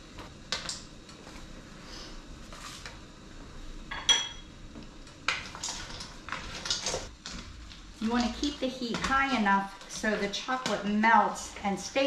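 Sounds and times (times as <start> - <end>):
utensils knocking and scraping pot: 8.0 - 11.4.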